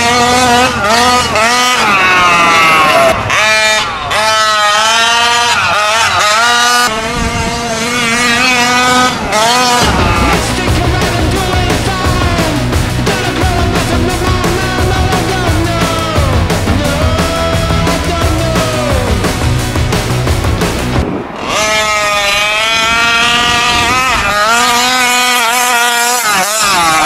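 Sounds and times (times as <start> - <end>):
rc truck motor revving: 0.0 - 27.0
rock music: 9.7 - 21.4.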